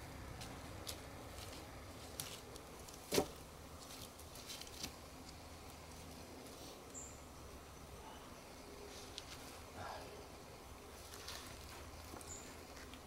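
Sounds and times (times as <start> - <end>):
wooden poles knocking together: 3.0 - 3.4.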